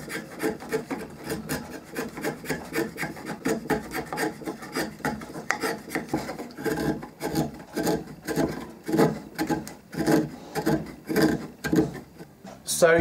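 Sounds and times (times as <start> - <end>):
chisel slicing wood: 0.0 - 12.3.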